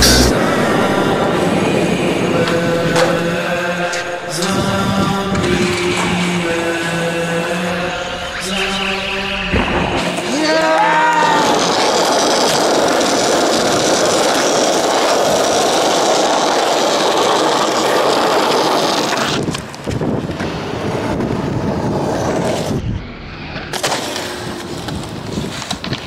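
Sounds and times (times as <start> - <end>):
skateboard wheels rolling on pavement: 0.0 - 8.5, 9.5 - 26.0
skateboard popping and landing: 2.4 - 4.2, 9.6 - 22.7, 23.5 - 26.0.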